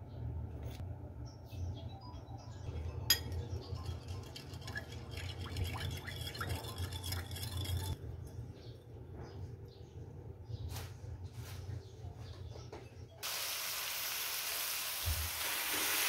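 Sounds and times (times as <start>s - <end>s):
spoon stirring and scraping bowl: 3.1s - 8.0s.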